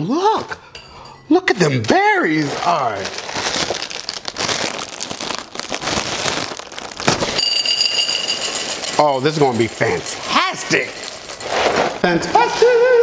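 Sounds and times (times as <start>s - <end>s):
plastic bag crinkling: 2.2s - 12.2s
cereal pouring into glass bowl: 2.6s - 12.1s
high steady ringing tone: 7.4s - 8.8s.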